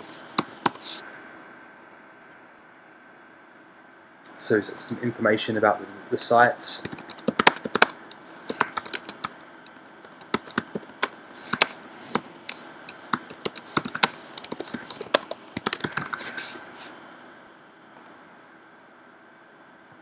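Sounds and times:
typing on keyboard: 0.0s - 1.0s, 6.8s - 16.5s.

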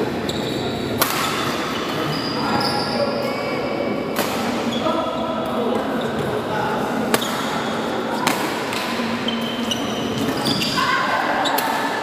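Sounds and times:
sports hall background noise: 0.0s - 12.0s
sneakers squeaking on court: 0.2s - 3.2s, 9.2s - 11.7s
racket striking shuttlecock: 1.0s - 1.4s.

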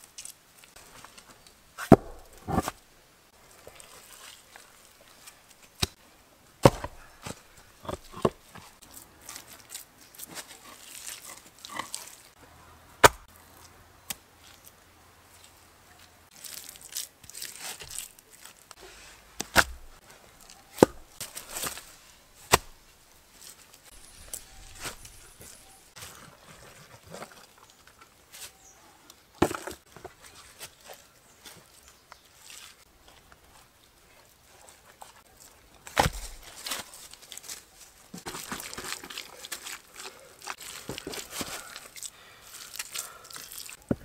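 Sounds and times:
rustle of dry leaves: 0.0s - 1.8s, 2.7s - 6.1s, 8.7s - 12.4s, 13.3s - 19.4s, 20.0s - 29.0s, 30.1s - 43.8s
earth scraped by hand: 1.8s - 2.8s.

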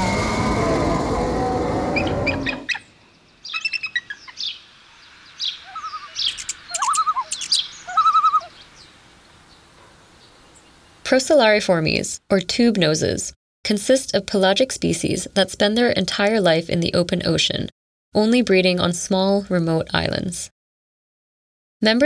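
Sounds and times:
loud hissing rattling whoosh: 0.0s - 2.8s
bird chirps and trills: 1.6s - 11.0s.

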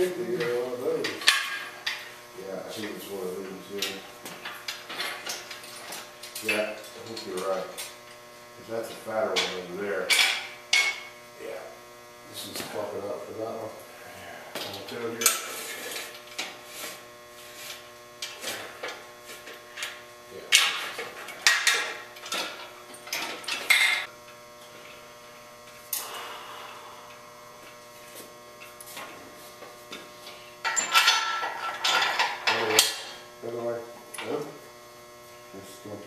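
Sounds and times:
steady electrical hum: 0.0s - 36.0s
steel parts clanking: 30.6s - 33.1s.

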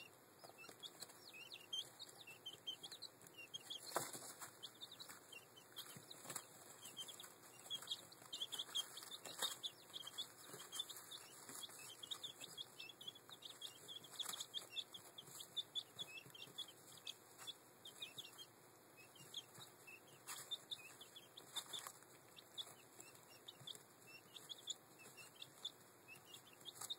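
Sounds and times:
chicks peeping: 0.0s - 26.9s
scratching in wood shavings: 3.6s - 12.7s, 19.4s - 23.8s.

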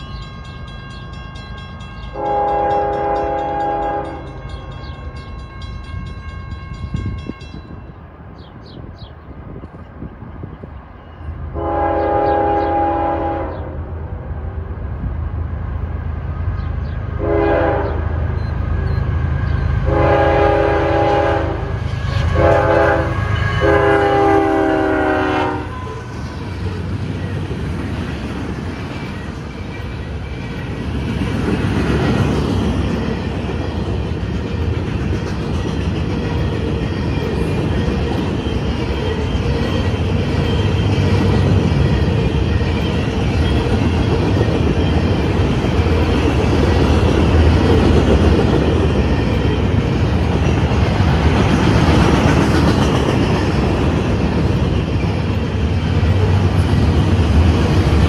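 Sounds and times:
freight train rumble and rail clatter: 0.0s - 58.0s
locomotive horn blasts: 1.6s - 4.6s, 11.6s - 13.8s, 17.2s - 18.1s, 19.8s - 26.1s.

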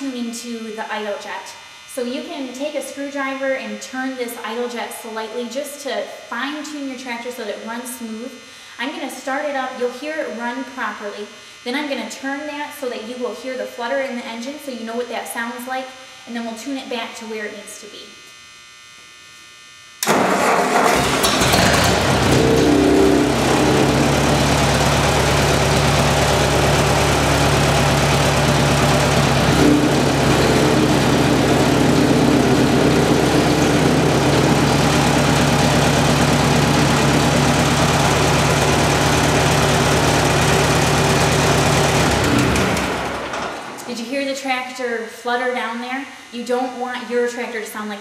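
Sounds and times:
tractor engine idling: 20.0s - 43.9s.

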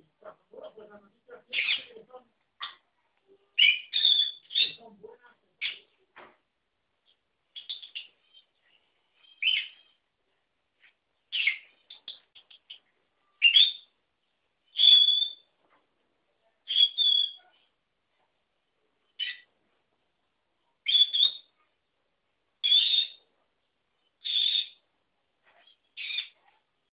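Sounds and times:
small bird chirps: 1.5s - 5.0s, 5.6s - 6.1s, 7.0s - 10.1s, 10.8s - 15.8s, 16.4s - 17.8s, 18.6s - 19.5s, 20.6s - 21.9s, 22.6s - 24.9s, 25.5s - 26.7s.

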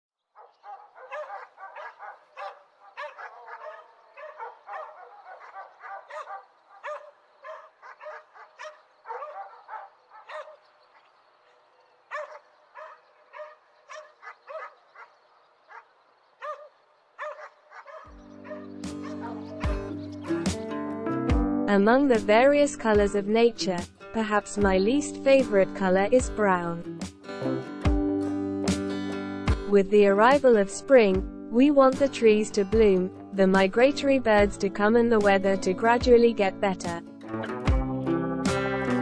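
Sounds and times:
dogs barking: 0.3s - 20.6s.

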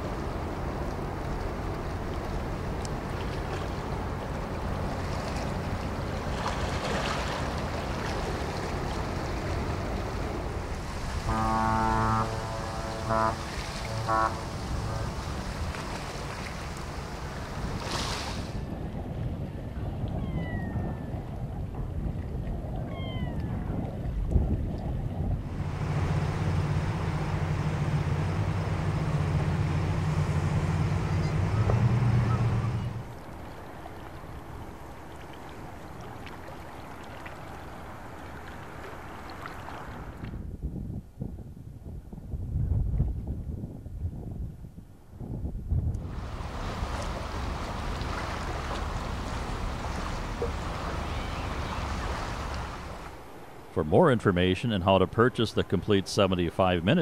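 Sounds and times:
ship engine drone: 0.0s - 18.6s, 25.4s - 33.8s, 46.0s - 57.0s
water rushing along hull: 0.0s - 40.6s, 45.9s - 57.0s
ship horn two-note drone: 11.0s - 16.4s, 25.6s - 33.1s.

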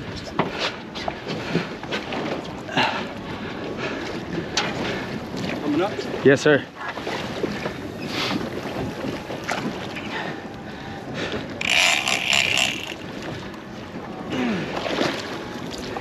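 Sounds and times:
water sloshing against hull: 0.0s - 16.0s
wind buffeting microphone: 7.0s - 11.7s.

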